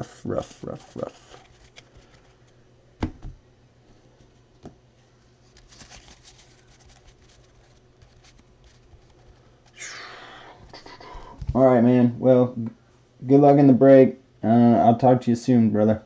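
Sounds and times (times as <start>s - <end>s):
cards rustling and shuffling: 0.2s - 2.6s, 5.4s - 9.9s.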